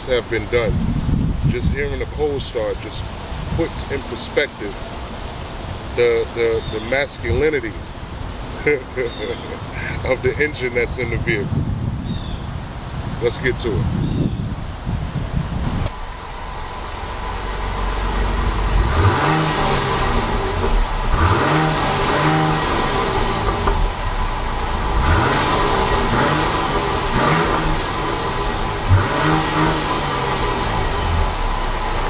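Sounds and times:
car engine idling: 0.0s - 13.8s, 14.5s - 32.0s
engine revving in short blips: 16.8s - 32.0s.

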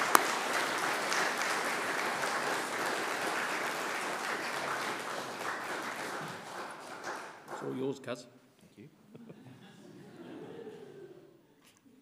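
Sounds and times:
loud single clap close by: 0.0s - 1.6s
audience applauding: 0.0s - 7.8s.

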